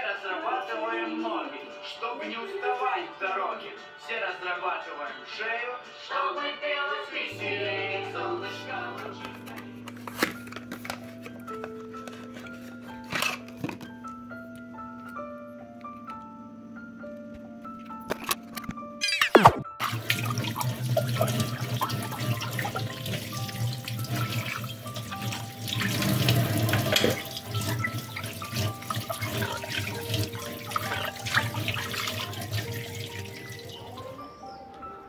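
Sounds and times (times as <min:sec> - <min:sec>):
quiet background music: 0:00.0 - 0:35.0
water splashing while rinsing: 0:19.3 - 0:34.0
tap water running into steel sink: 0:19.8 - 0:34.0.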